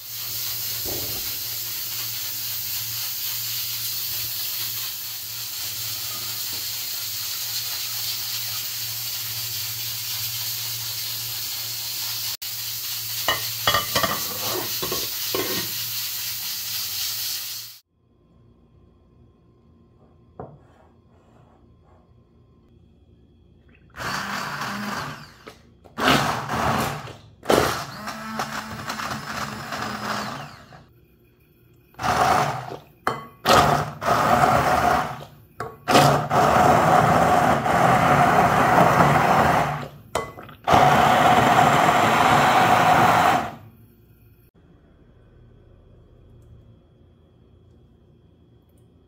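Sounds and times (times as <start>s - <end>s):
immersion blender whining: 23.9s - 30.9s, 32.0s - 35.3s, 35.9s - 40.0s, 40.6s - 43.7s.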